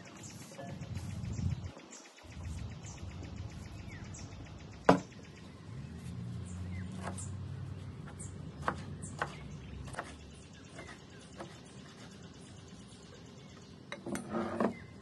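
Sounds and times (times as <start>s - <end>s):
birds chirping: 0.0s - 15.0s
knife chopping herbs on board: 8.0s - 10.2s.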